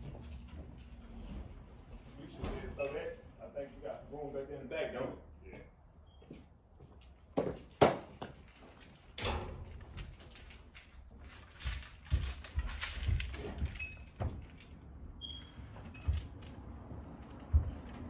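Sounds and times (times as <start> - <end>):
keys jangling: 8.7 - 14.8
footsteps on stairs: 11.6 - 14.3, 15.9 - 18.0.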